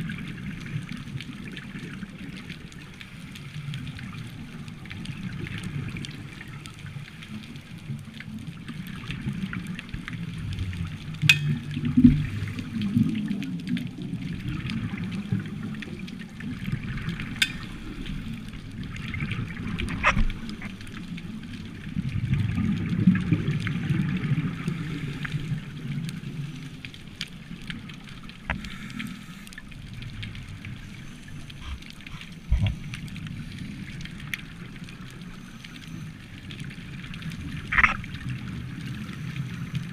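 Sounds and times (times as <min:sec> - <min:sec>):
regulator bubbles gurgling underwater: 0:00.0 - 0:39.9
thin crackle: 0:00.2 - 0:39.9.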